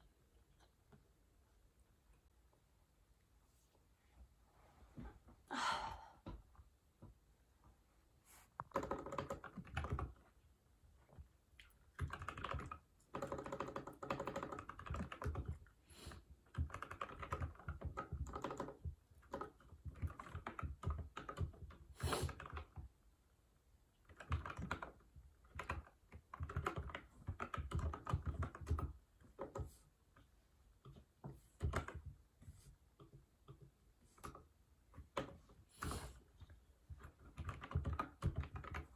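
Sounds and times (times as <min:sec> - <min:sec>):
mechanical keyboard typing: 0:08.6 - 0:10.3, 0:11.9 - 0:15.8, 0:16.4 - 0:22.8, 0:24.0 - 0:29.8, 0:31.6 - 0:32.2, 0:36.9 - 0:38.9.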